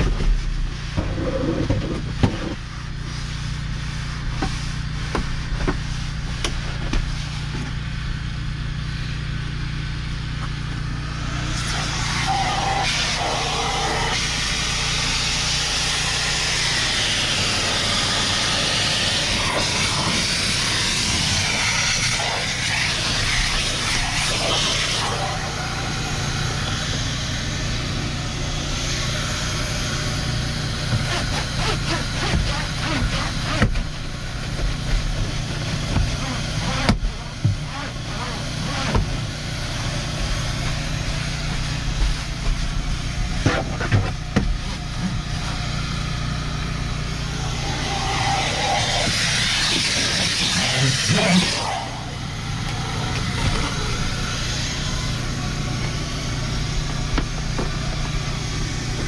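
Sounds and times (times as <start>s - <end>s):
low machine hum: 0.0s - 59.0s
loud rushing hiss: 11.1s - 30.8s, 45.6s - 59.0s.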